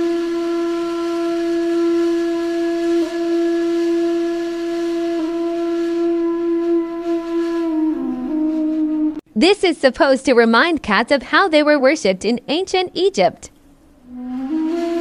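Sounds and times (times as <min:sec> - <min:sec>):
long flute-like note: 0:00.0 - 0:09.3, 0:14.0 - 0:15.0.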